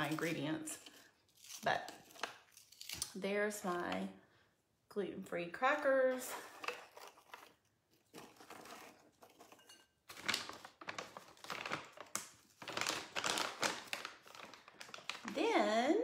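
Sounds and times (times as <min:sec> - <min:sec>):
plastic pouch crinkling: 0:10.1 - 0:15.4.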